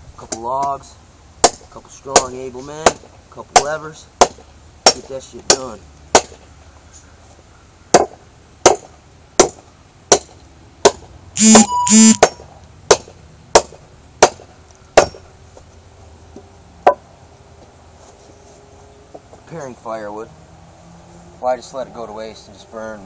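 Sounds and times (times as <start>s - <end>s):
machete chopping log: 1.4s - 6.4s, 7.9s - 11.1s, 12.2s - 15.2s
harsh buzzing burst: 11.4s - 12.3s.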